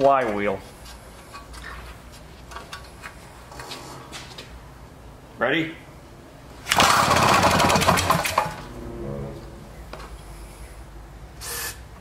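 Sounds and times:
engine pull-start cranking: 0:06.7 - 0:08.6.

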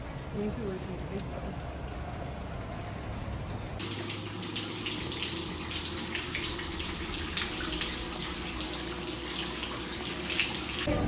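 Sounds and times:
water splashing and bubbling in bathtub: 0:03.8 - 0:10.9.

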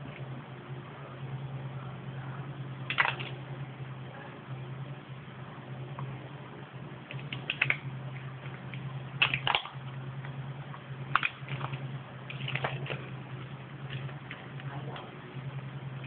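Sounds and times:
steady low hum: 0:00.0 - 0:16.0
sticky tape crackling: 0:07.0 - 0:16.0.

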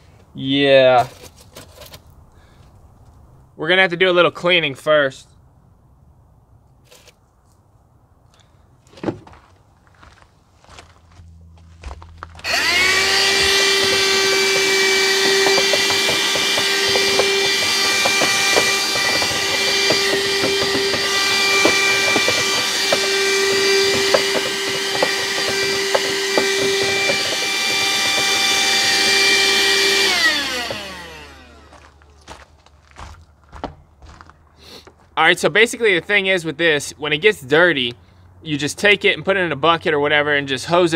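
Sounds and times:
handheld vacuum running: 0:12.4 - 0:31.9.

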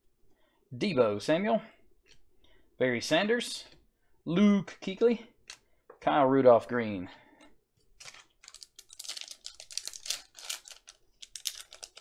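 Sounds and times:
foil wrapper crinkling and tearing: 0:08.0 - 0:12.0.

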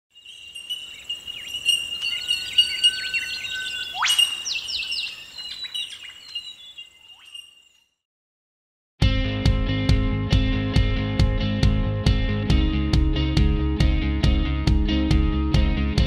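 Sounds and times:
birds chirping: 0:00.1 - 0:08.0
high insect drone: 0:00.2 - 0:05.4.

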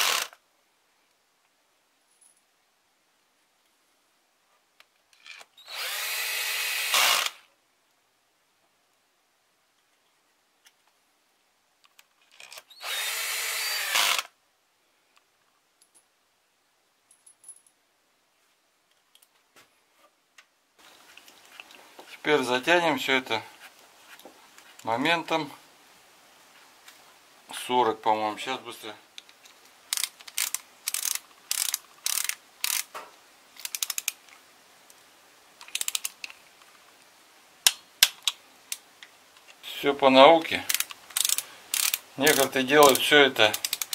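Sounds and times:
cordless drill motor whine: 0:05.6 - 0:07.4, 0:12.8 - 0:14.3
hand ratchet clicking: 0:29.9 - 0:32.9, 0:33.6 - 0:34.2, 0:35.6 - 0:36.2, 0:40.7 - 0:43.9
bit and bolts clicking: 0:40.6 - 0:43.9.

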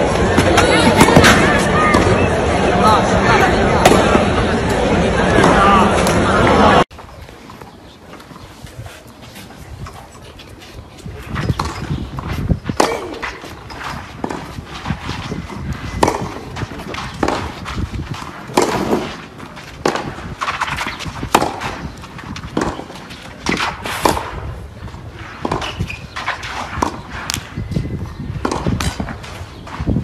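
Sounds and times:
tennis balls struck with rackets: 0:00.1 - 0:02.3, 0:03.8 - 0:06.2, 0:11.4 - 0:24.5, 0:25.3 - 0:27.5, 0:28.3 - 0:29.9.

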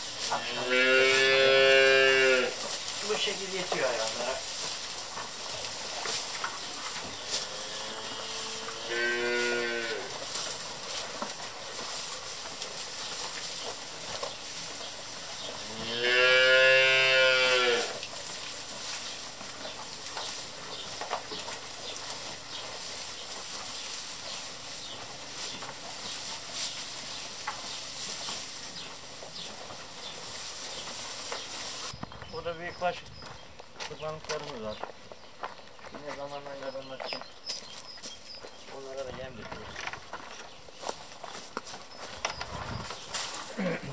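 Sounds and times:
hay rustling: 0:00.0 - 0:32.7, 0:40.4 - 0:43.9
calves mooing: 0:00.3 - 0:04.3, 0:07.0 - 0:10.3, 0:15.5 - 0:18.1.

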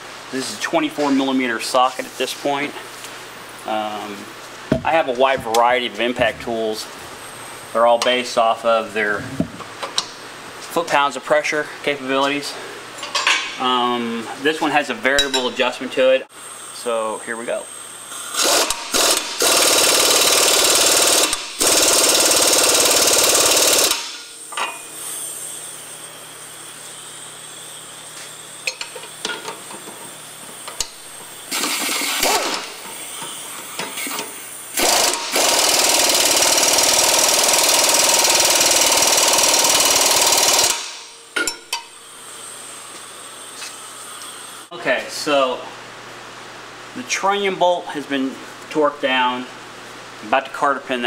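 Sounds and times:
impact wrench hammering bolts: 0:18.3 - 0:24.8, 0:30.7 - 0:42.0.

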